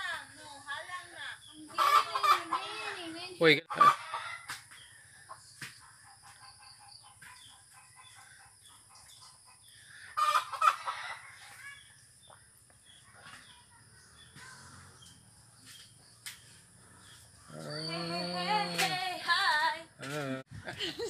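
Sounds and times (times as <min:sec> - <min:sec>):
chickens clucking: 0:01.4 - 0:18.0.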